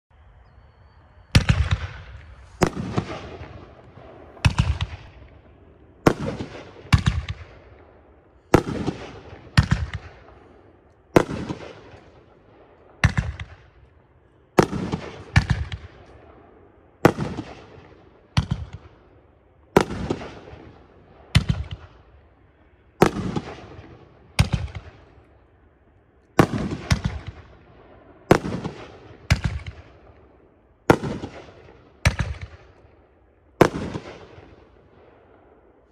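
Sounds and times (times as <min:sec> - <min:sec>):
firework bangs: 0:01.4 - 0:05.4, 0:08.5 - 0:10.5, 0:11.1 - 0:12.3, 0:14.6 - 0:16.0, 0:23.0 - 0:25.0, 0:26.4 - 0:27.6, 0:28.2 - 0:30.0, 0:30.9 - 0:32.7, 0:33.6 - 0:35.6.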